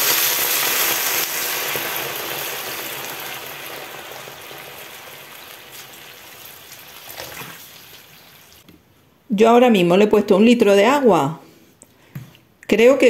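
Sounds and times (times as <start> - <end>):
pan sizzling: 0.0 - 8.6
water pouring into a pan: 0.0 - 8.6.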